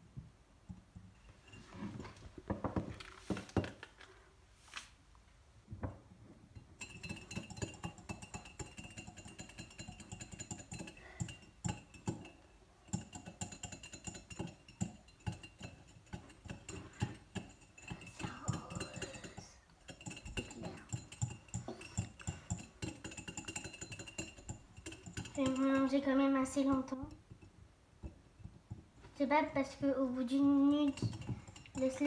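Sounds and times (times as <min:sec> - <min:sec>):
wire whisk clinking against mug: 0:06.6 - 0:28.7, 0:30.7 - 0:32.0.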